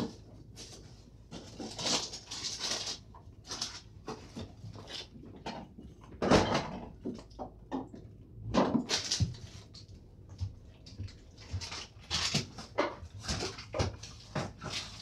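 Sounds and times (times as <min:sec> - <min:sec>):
kitchen knocks and clatters: 0:00.0 - 0:15.0.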